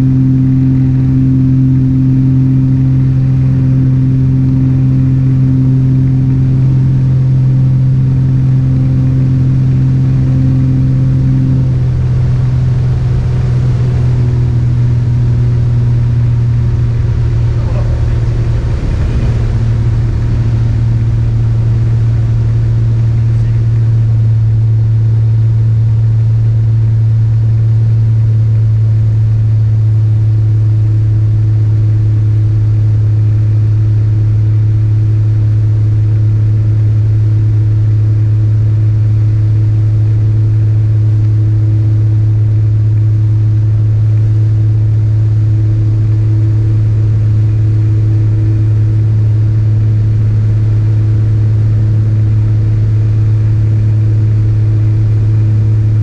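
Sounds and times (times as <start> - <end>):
light aircraft engine drone: 0.0 - 56.0.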